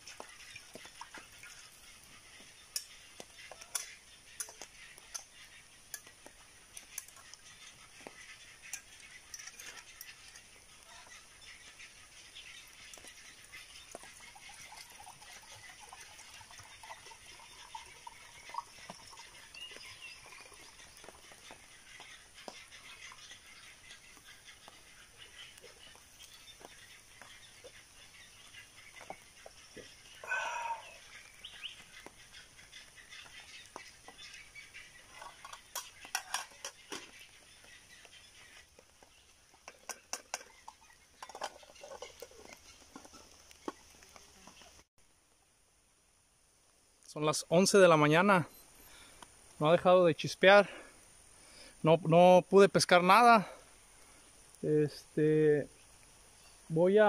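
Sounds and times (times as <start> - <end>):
faint bird calls: 0.0 - 44.9
wood fire crackling: 0.0 - 44.9.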